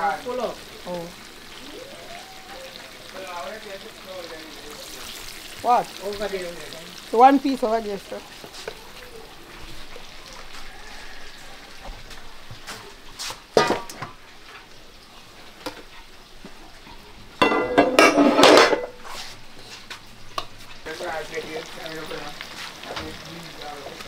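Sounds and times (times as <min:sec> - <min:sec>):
frying sizzle: 0:00.0 - 0:24.0
metal cooking pots clanking: 0:13.5 - 0:14.6, 0:15.6 - 0:19.0.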